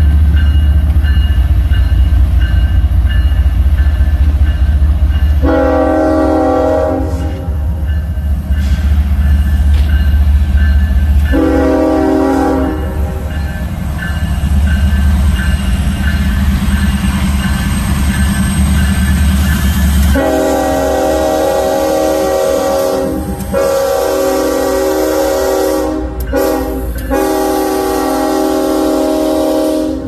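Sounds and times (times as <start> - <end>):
diesel locomotive engine rumble: 0.0 - 30.0
train air horn blasts: 5.4 - 7.8, 11.2 - 13.3, 20.0 - 30.0.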